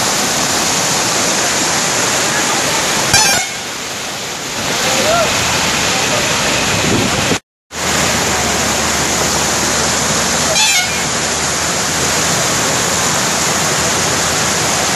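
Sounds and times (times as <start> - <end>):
floodwater rushing over rocks: 0.0 - 14.9.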